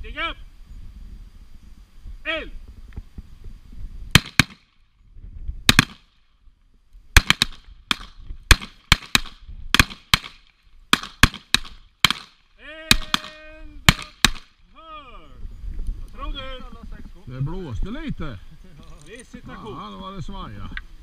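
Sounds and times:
revolver gunshots: 4.1 - 4.7, 5.7 - 6.1, 7.2 - 14.6.

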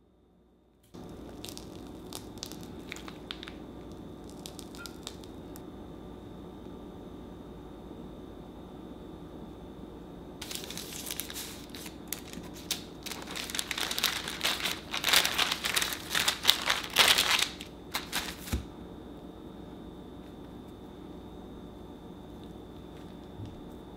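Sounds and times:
parchment paper rustling: 1.0 - 5.6, 10.4 - 18.7.

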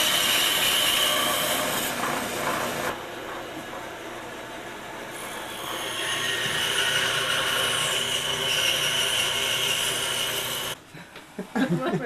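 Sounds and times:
power tool high whine: 5.7 - 10.8.

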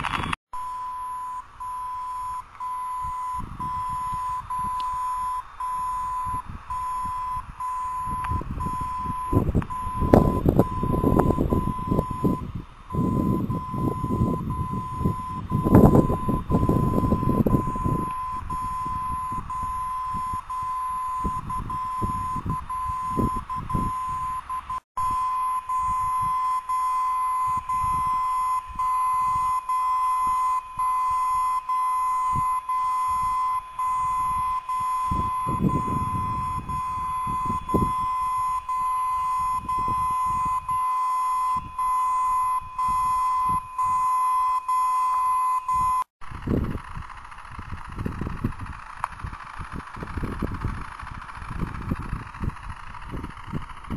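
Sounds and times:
low rumbling handling noise: 46.2 - 53.9.

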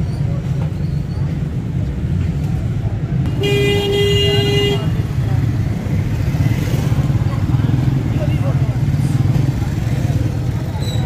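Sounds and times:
street traffic: 0.0 - 11.0
vehicle horn: 3.4 - 5.0
motorcycle engines running: 4.8 - 11.0.

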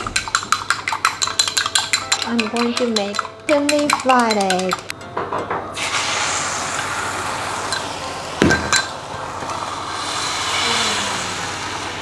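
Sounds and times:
egg sizzling in frying pan: 5.8 - 12.0.

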